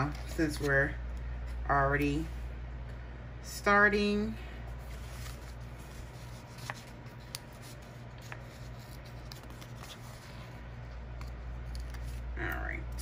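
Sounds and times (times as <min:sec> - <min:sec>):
low steady hum: 0:00.0 - 0:13.0
paper rustling: 0:04.8 - 0:12.3.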